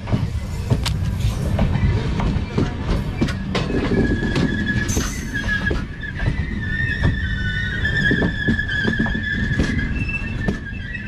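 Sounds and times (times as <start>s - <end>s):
train coaches rumbling past: 0.0s - 11.0s
high-pitched wheel squeal: 3.2s - 11.0s.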